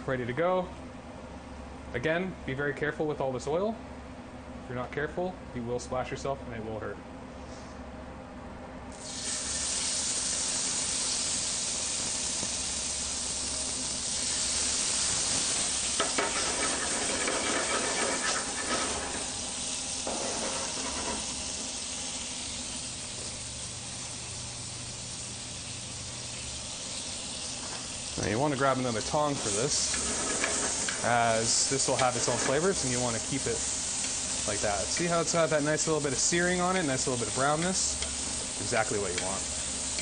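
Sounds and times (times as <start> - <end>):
meat sizzling in frying pan: 9.0 - 40.0.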